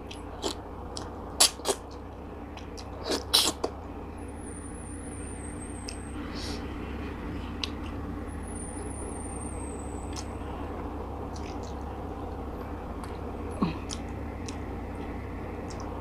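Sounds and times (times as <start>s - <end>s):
chewing and mouth clicks: 0.0s - 3.7s, 7.5s - 8.0s, 10.1s - 10.3s, 11.3s - 11.8s, 13.0s - 16.0s
low hum: 0.0s - 16.0s.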